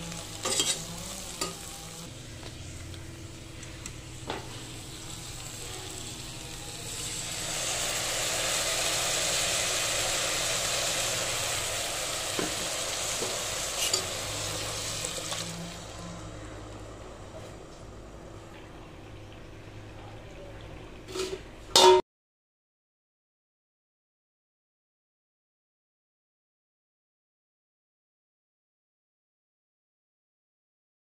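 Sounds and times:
loud sizzle: 0:00.0 - 0:22.0
spices frying in oil: 0:00.0 - 0:22.0.

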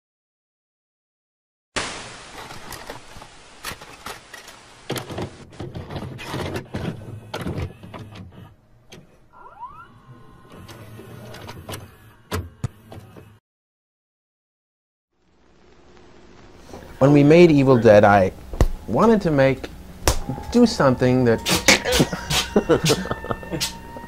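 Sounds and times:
tv static hiss with crackles: 0:01.8 - 0:05.4, 0:15.2 - 0:23.9
short rising whistles: 0:09.4 - 0:10.2.

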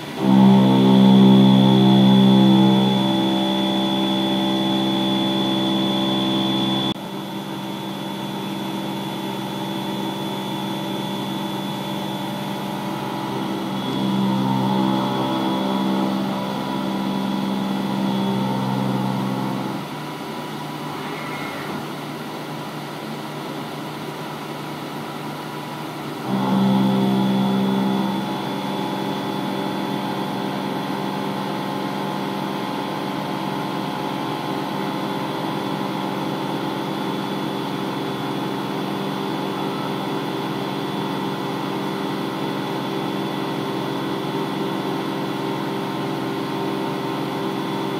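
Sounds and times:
milling machine cutting steel: 0:00.0 - 0:19.9.

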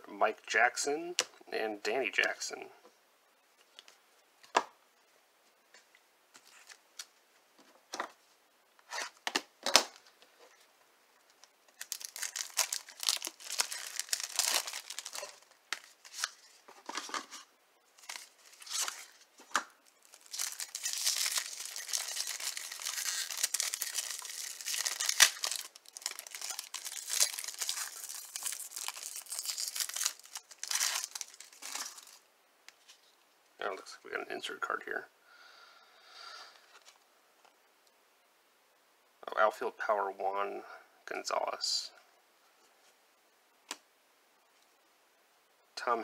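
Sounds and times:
wrapper tearing and crinkling: 0:11.7 - 0:16.6, 0:18.0 - 0:32.2.

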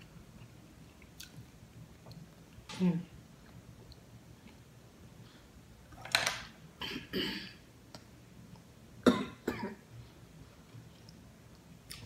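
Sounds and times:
woman coughing: 0:06.8 - 0:07.6, 0:09.0 - 0:09.8.

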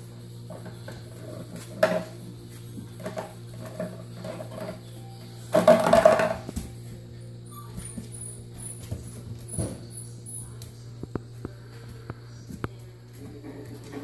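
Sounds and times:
bottle clattering across floor: 0:05.5 - 0:06.6.

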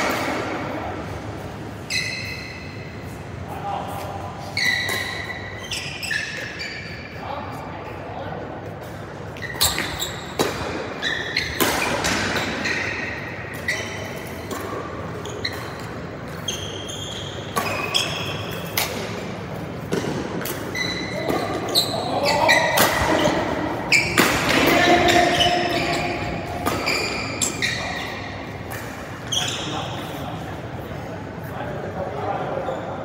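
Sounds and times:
court shoes squeaking: 0:00.0 - 0:33.0
voices: 0:21.0 - 0:33.0.

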